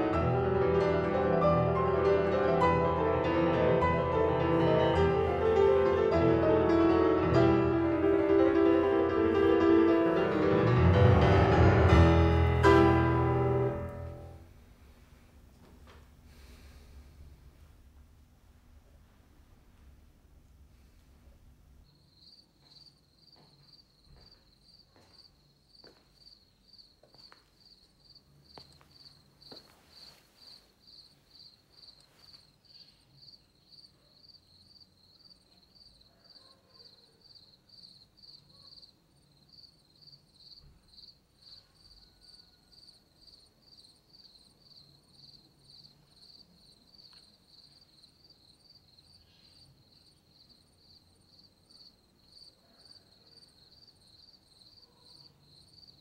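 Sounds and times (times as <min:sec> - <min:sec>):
crickets chirping: 0:21.8 - 0:56.0.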